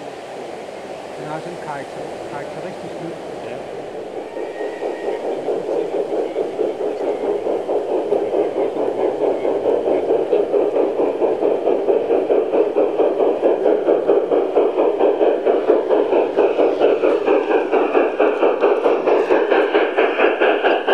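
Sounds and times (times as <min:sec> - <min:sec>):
model train rhythmic pulsing: 0:00.0 - 0:20.9.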